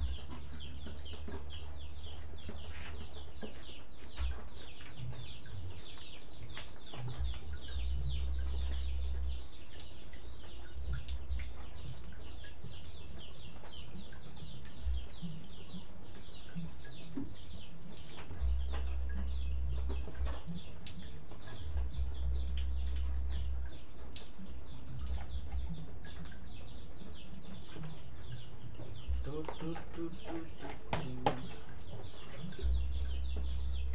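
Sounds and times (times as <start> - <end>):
birds chirping: 0.0 - 33.9
light knocks: 30.9 - 31.6.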